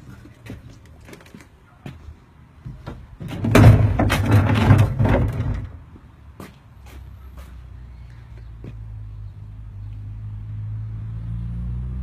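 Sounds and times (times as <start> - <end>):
door knocking and rumbling: 3.2 - 5.7.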